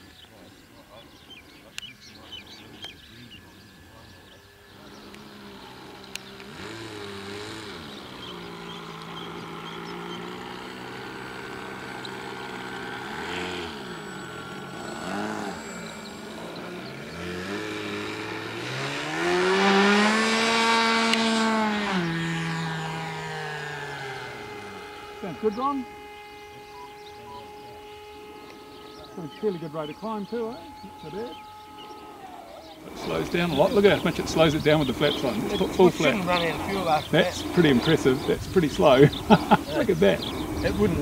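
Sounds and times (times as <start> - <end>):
electric motor and propeller hum: 0.0 - 41.0.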